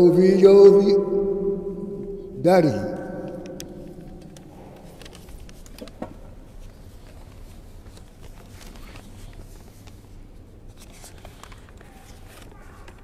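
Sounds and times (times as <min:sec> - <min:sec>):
low steady hum: 0:00.0 - 0:07.6.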